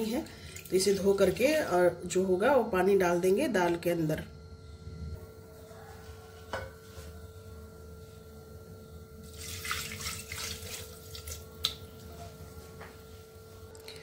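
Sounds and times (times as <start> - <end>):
water pouring and splashing: 9.3 - 11.5.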